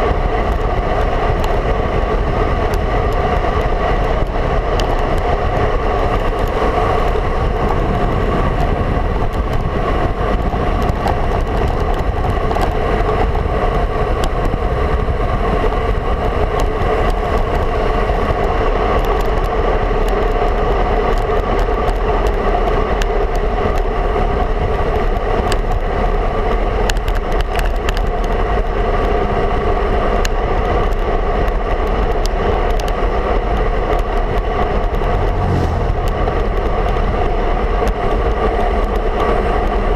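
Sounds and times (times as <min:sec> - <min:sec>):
wind buffeting microphone: 0:00.0 - 0:18.9, 0:32.5 - 0:39.9
bike tyre noise: 0:30.8 - 0:39.9.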